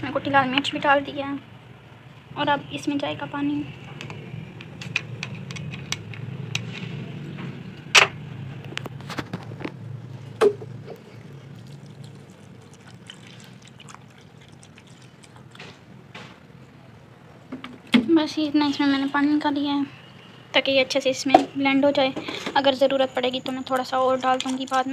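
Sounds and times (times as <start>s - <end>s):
water pouring into blender jar: 11.6s - 15.4s.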